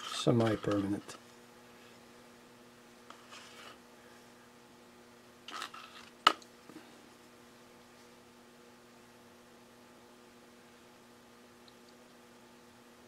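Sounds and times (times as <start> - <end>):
electrical mains hum: 0.0 - 13.0
knife scraping grout: 3.1 - 3.8.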